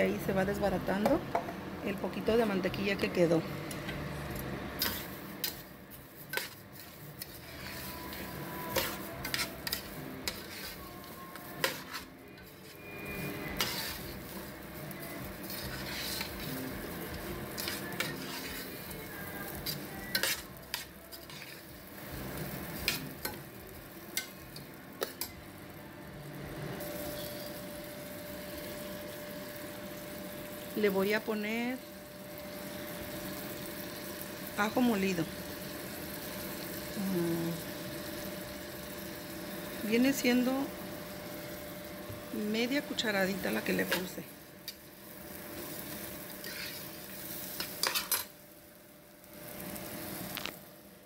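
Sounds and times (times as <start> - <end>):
rice sizzling in butter: 4.5 - 51.0
metal spoon clinking and scraping pot: 4.8 - 21.8, 22.7 - 23.5, 24.1 - 25.4, 26.8 - 27.7, 45.6 - 48.4.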